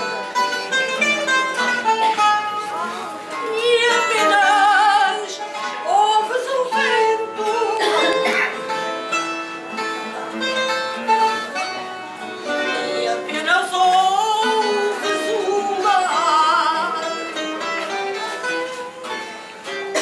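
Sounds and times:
plucked guitars: 0.0s - 20.0s
woman singing with vibrato: 2.7s - 8.5s, 12.5s - 17.4s.

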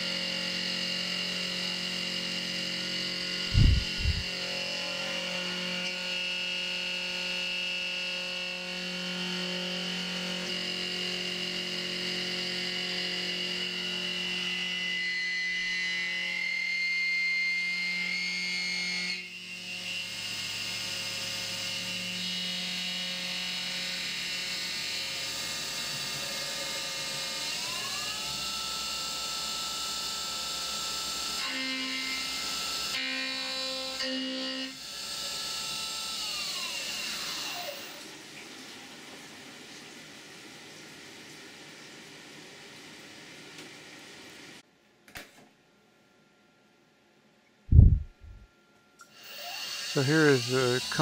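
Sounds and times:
milling machine whine: 0.0s - 38.2s, 49.0s - 51.0s.

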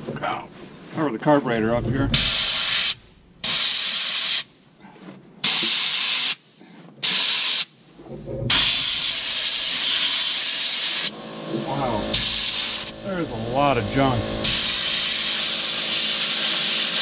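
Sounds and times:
compressed air blow gun hissing: 2.2s - 4.5s, 8.5s - 11.2s, 12.0s - 17.0s.

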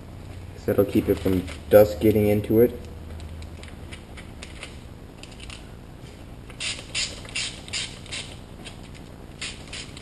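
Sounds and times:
spray bottle squirting: 6.6s - 8.4s.

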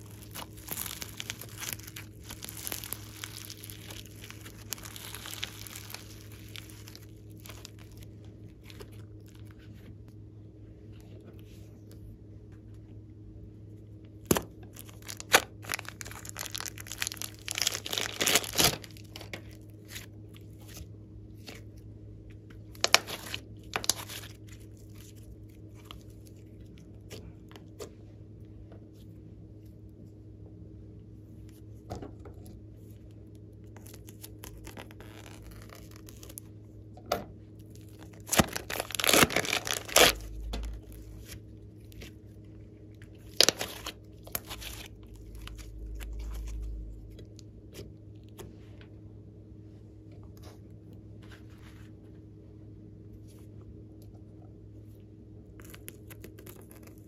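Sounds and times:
plastic bag crinkling: 0.0s - 9.5s, 14.7s - 20.0s, 22.7s - 26.4s, 33.8s - 36.4s, 37.7s - 42.1s, 43.2s - 47.3s
slime squeezed sticky crackling: 0.0s - 9.6s, 14.3s - 20.1s, 22.7s - 27.3s, 33.7s - 36.5s, 37.7s - 42.1s, 43.0s - 47.4s.

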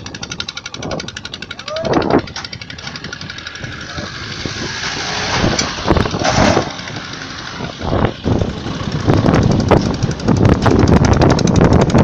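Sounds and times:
cars and truck driving past: 2.4s - 10.3s.

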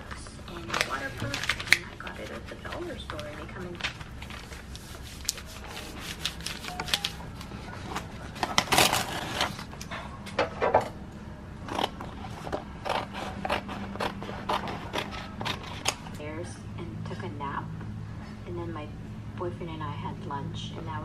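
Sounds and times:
paper rustling and rubbing: 0.5s - 9.7s
crinkling rustle: 0.5s - 9.8s.

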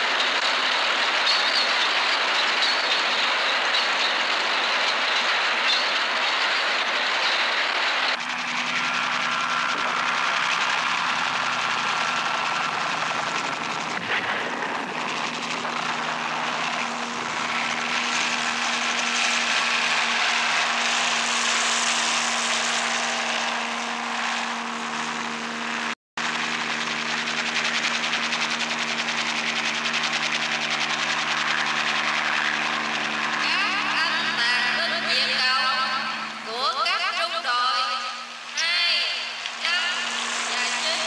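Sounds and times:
vehicle engine running: 0.0s - 41.0s.

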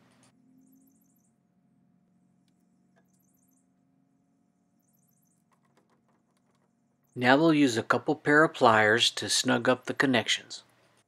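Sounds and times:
faint low hum: 0.0s - 11.0s
faint high-pitched chirps: 0.3s - 7.3s.

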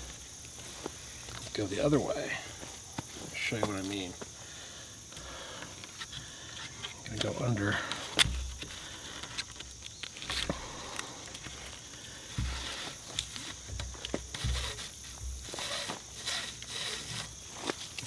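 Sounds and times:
cord rasping against bark: 1.2s - 18.0s
low thumps from handling: 12.3s - 17.4s.

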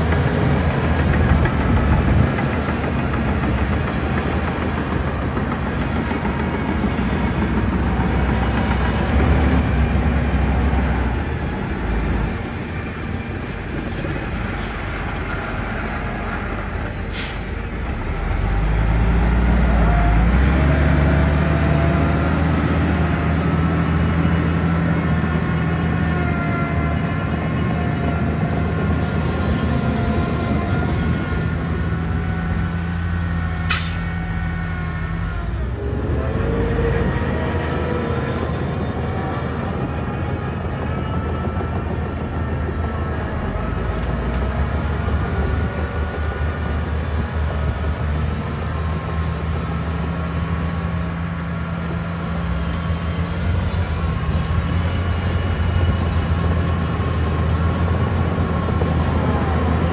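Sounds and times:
heavy diesel machinery engine: 0.0s - 59.9s.

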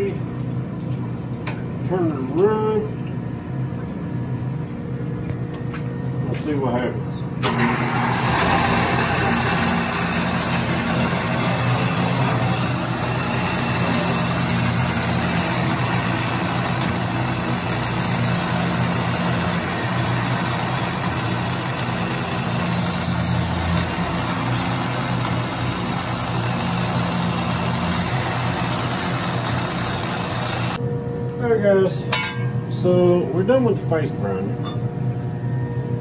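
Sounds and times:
low motor hum: 0.0s - 31.5s
grinding wheel grinding metal: 7.5s - 30.8s.

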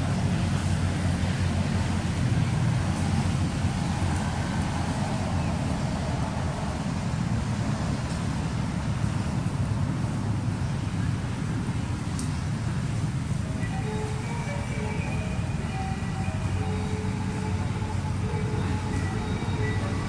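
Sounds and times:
low rumbling background noise: 0.0s - 20.0s.

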